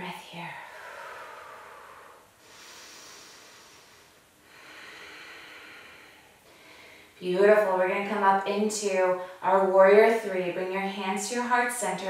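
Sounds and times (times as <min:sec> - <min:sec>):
woman breathing slowly: 0:00.5 - 0:07.2.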